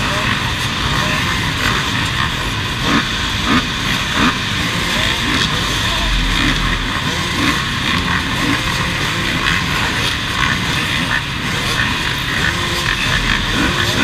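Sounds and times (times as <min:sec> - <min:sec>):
motorcycle engines idling and revving: 0:00.0 - 0:14.0.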